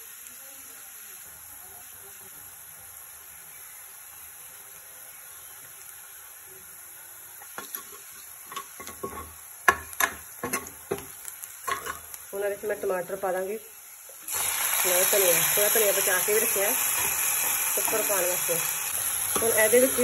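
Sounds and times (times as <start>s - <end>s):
onions sizzling in oil: 0.0s - 20.0s
spatula scraping and knocking pan: 7.4s - 12.1s.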